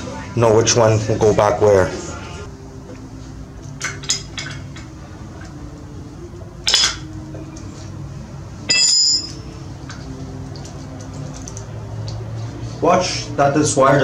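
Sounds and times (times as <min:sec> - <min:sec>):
metal tools clinking: 0:08.7 - 0:09.5.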